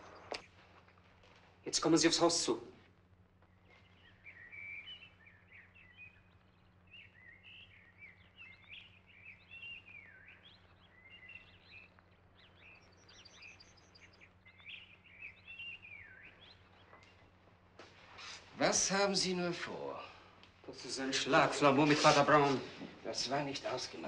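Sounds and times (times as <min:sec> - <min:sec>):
low steady hum: 0:00.0 - 0:24.0
songbird chirping and whistling: 0:03.5 - 0:17.3.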